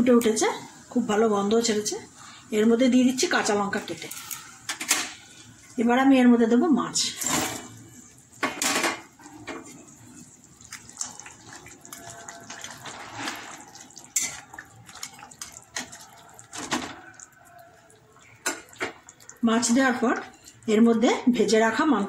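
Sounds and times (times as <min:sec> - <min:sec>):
spatula stirring liquid: 0:07.3 - 0:20.7
fish splashing into boiling gravy: 0:08.4 - 0:20.4
low bubbling liquid: 0:09.2 - 0:20.5.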